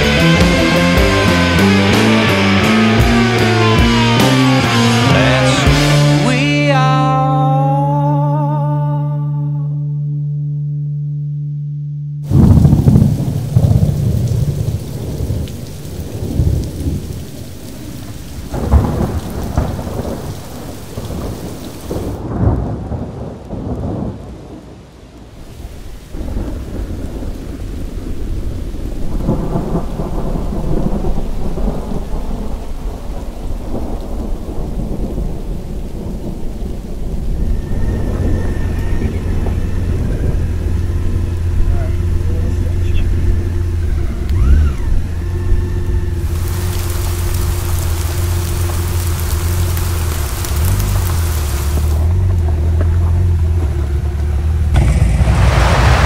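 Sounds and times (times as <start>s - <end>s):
steady rain: 0.0s - 7.0s, 12.3s - 56.0s
thunder rumbling: 12.3s - 56.0s.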